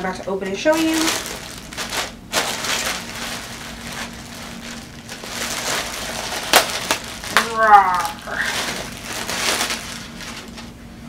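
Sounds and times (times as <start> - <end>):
plastic bag crinkling: 0.6 - 10.7.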